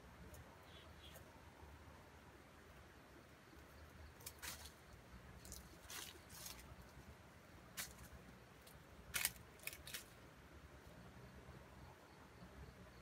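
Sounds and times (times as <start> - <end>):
rustles of dry leaf litter: 4.1 - 10.3.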